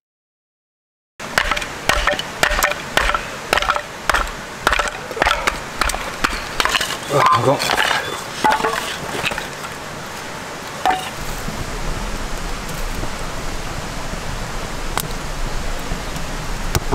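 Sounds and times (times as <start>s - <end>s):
wood fire crackling: 1.2s - 16.4s
fire popping: 1.3s - 13.2s.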